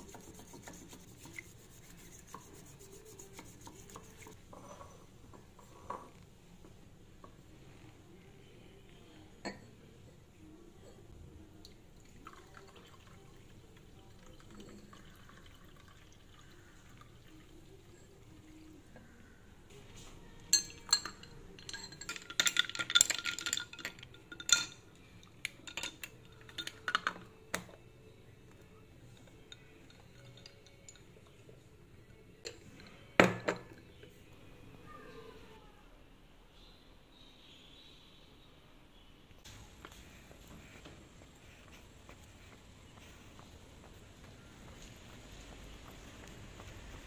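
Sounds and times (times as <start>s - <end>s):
liquid pouring: 11.6s - 17.7s
stirrer clinking against glass: 20.5s - 27.3s, 29.1s - 31.4s.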